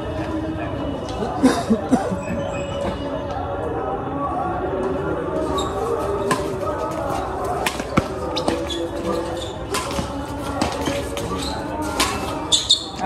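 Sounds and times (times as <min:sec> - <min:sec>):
spectators' voices: 0:00.0 - 0:13.0
footsteps on concrete court: 0:05.3 - 0:13.0
racket hitting shuttlecock: 0:06.2 - 0:13.0.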